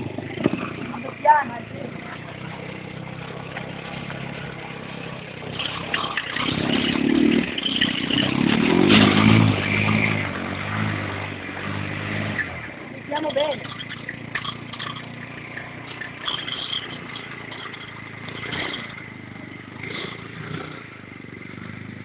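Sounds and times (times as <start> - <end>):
quad bike engine revving: 0.0 - 22.0.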